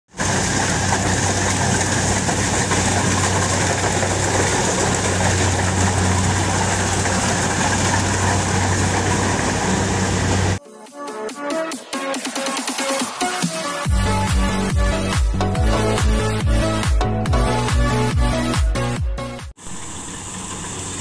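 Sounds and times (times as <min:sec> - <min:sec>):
combine harvester running: 0:00.1 - 0:10.6, 0:13.9 - 0:18.7, 0:19.6 - 0:21.0.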